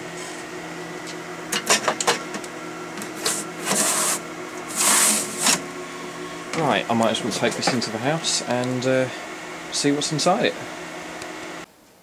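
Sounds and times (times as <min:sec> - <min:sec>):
steady low hum: 0:00.0 - 0:11.7
metal sliding on metal: 0:03.2 - 0:05.6.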